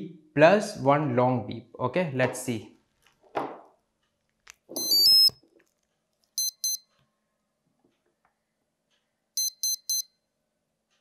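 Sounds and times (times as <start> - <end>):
motor short beeps: 4.8 - 5.3, 9.4 - 10.1.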